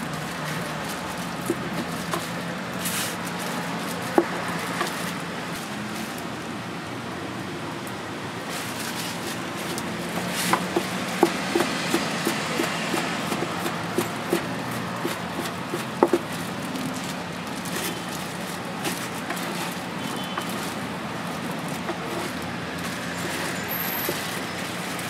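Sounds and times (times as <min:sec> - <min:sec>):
knife chopping on cutting board: 0:10.1 - 0:16.3.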